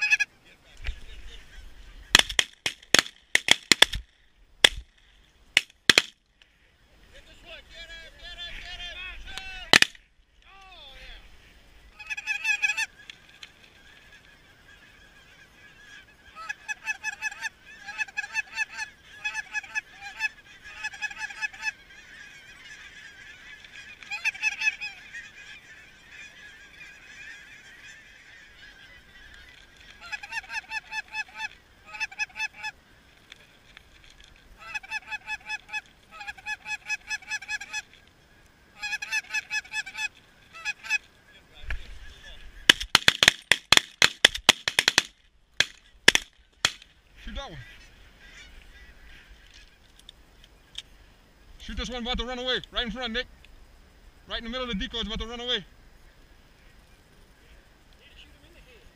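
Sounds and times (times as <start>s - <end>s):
goose honking: 0.0s - 0.3s, 11.9s - 32.8s, 34.6s - 38.0s, 38.7s - 41.1s, 47.2s - 49.9s.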